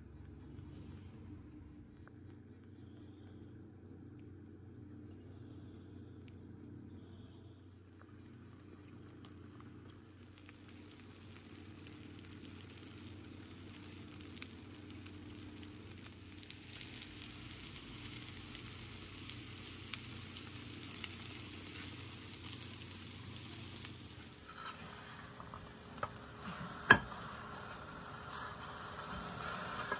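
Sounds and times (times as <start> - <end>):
eggs sizzling in a pan: 7.8 - 29.9.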